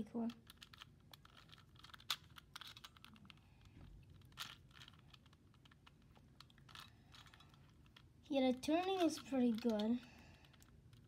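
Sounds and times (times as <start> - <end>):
puzzle cube clicking: 0.2 - 8.1.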